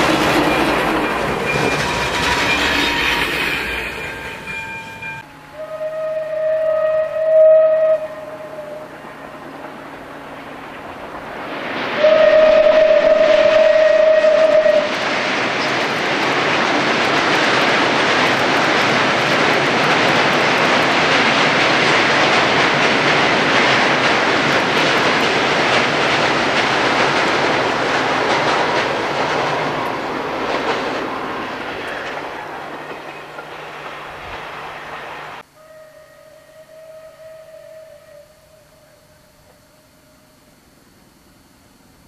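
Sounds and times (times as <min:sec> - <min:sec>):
train wheels rumbling on bridge: 0:00.0 - 0:05.6, 0:07.8 - 0:35.4.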